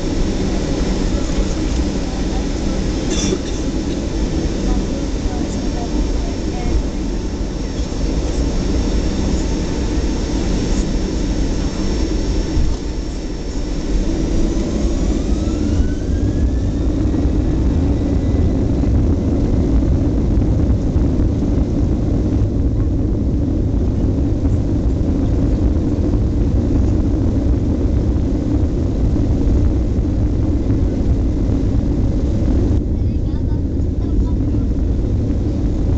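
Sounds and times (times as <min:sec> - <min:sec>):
jet engine rumble: 0:00.0 - 0:35.9
jet engine whine: 0:00.0 - 0:35.9.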